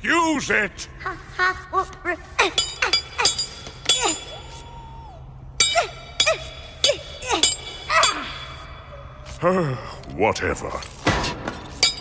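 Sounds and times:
wrench clanging on metal: 0:05.6 - 0:08.4, 0:11.6 - 0:12.0.

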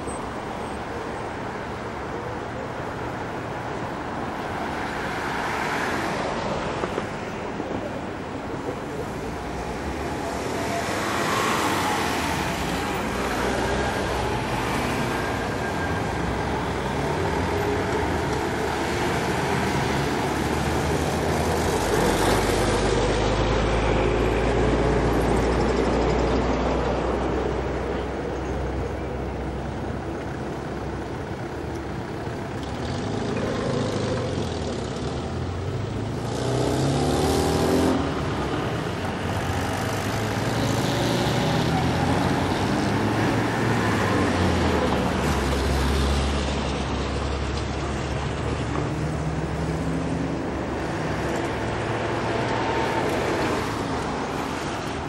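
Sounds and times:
cars driving past: 0:31.9 - 0:55.0.

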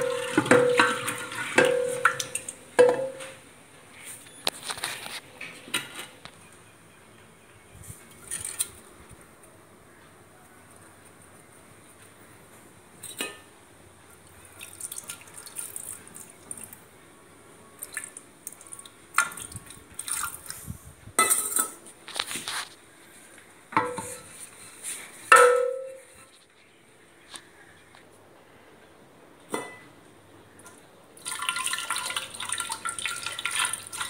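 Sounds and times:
wood knocking against metal pot: 0:00.0 - 0:03.4, 0:23.7 - 0:24.2, 0:25.3 - 0:26.0.

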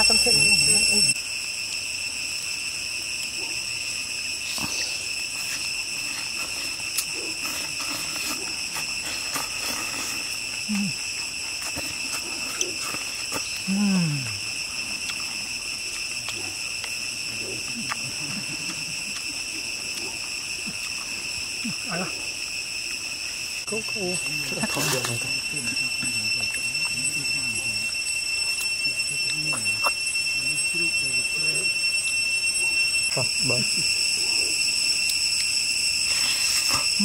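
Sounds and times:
high-pitched insect drone: 0:00.0 - 0:37.0
person humming low: 0:13.7 - 0:14.4.

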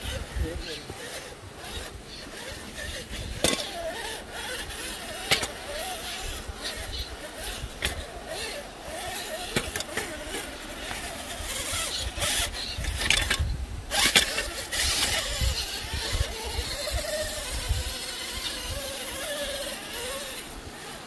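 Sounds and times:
rc car motor and gears whining: 0:00.0 - 0:21.0.

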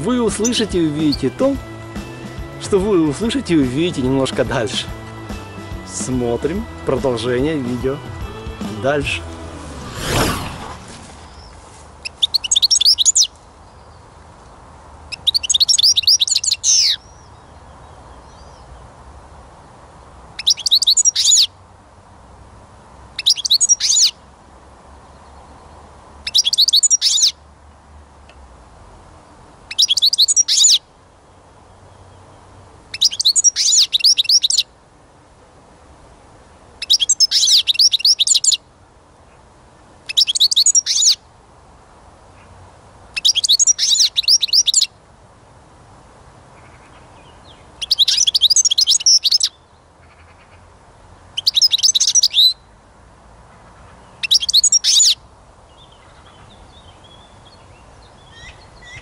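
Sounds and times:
goldfinch twittering: 0:00.0 - 0:03.2, 0:12.1 - 0:13.3, 0:26.3 - 0:27.3, 0:29.7 - 0:30.8, 0:32.9 - 0:34.6, 0:36.8 - 0:38.6, 0:40.1 - 0:41.2, 0:43.2 - 0:44.9, 0:47.8 - 0:49.6, 0:51.4 - 0:52.6, 0:54.2 - 0:55.2.

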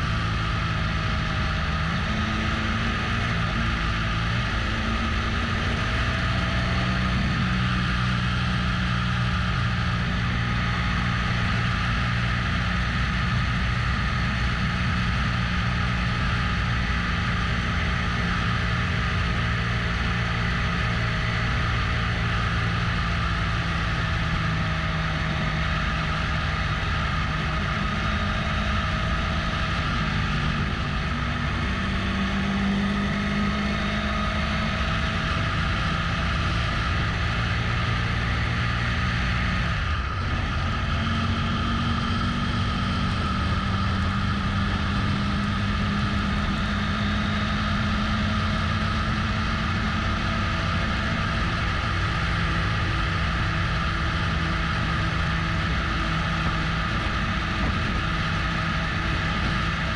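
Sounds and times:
motorcycle engine droning: 0:00.0 - 0:59.9
wind and road noise: 0:00.0 - 0:59.9.

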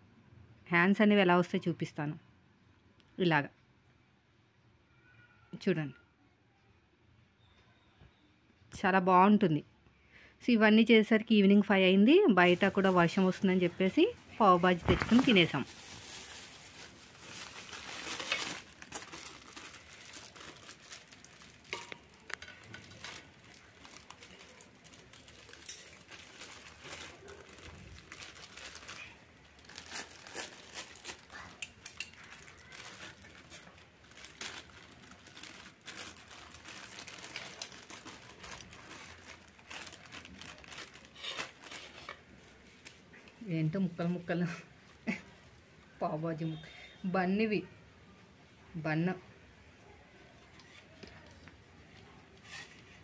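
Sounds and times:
plastic bags crinkling: 0:12.4 - 0:43.2
aluminium foil rustling: 0:12.4 - 0:45.6.

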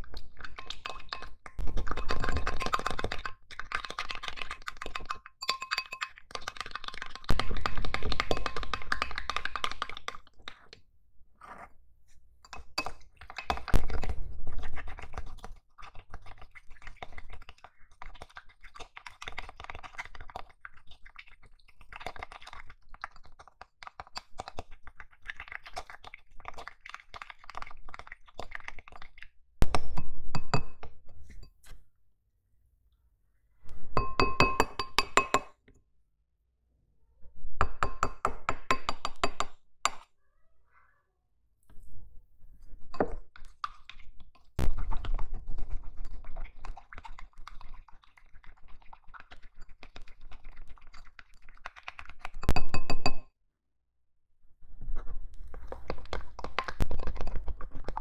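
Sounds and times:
spoon scraping glass bowl: 0:00.1 - 0:10.8, 0:11.4 - 0:22.8, 0:30.3 - 0:31.8, 0:34.0 - 0:35.5, 0:42.6 - 0:53.2.

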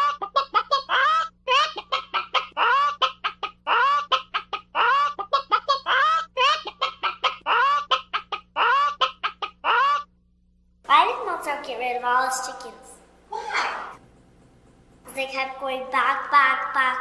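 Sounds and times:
chicken clucking: 0:00.0 - 0:10.0.

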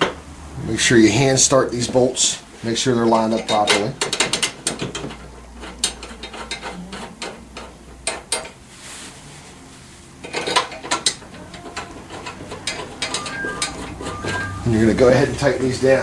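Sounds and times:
metal bolts clicking and rattling: 0:03.3 - 0:08.6, 0:10.2 - 0:14.5.

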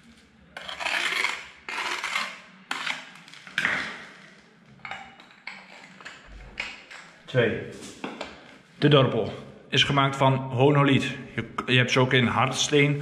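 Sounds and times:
tile scraping on hard floor: 0:00.0 - 0:04.2.

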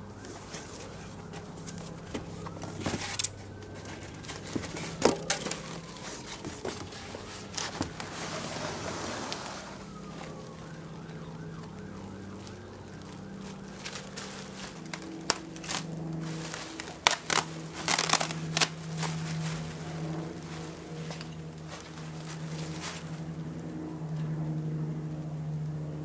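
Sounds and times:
distant siren wailing: 0:00.0 - 0:26.0
cardboard box rustling and scraping: 0:00.3 - 0:10.4.

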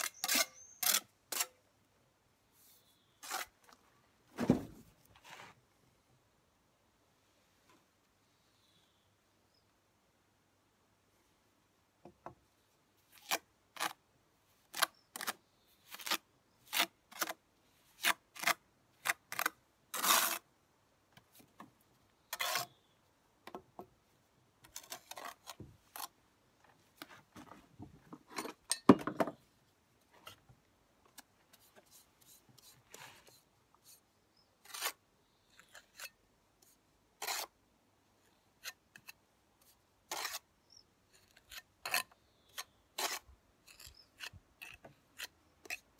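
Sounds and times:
trowel scraping mortar: 0:00.0 - 0:01.6, 0:03.2 - 0:03.6, 0:18.0 - 0:20.5, 0:22.3 - 0:22.8, 0:34.6 - 0:35.0, 0:35.6 - 0:37.6, 0:38.6 - 0:40.5, 0:41.1 - 0:45.9
trowel rubbing: 0:37.2 - 0:37.5, 0:40.1 - 0:40.5.

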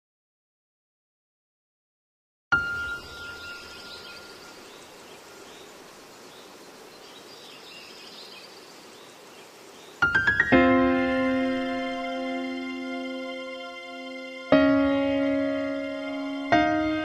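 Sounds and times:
outdoor background noise: 0:02.5 - 0:17.0
faint bird chirps: 0:02.6 - 0:10.4.

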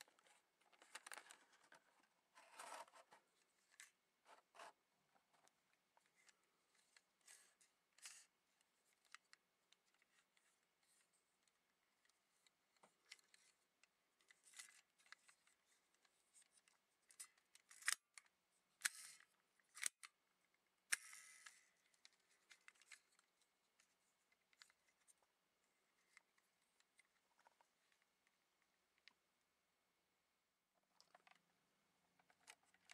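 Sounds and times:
plastic toy clicking and snapping: 0:17.2 - 0:20.1.

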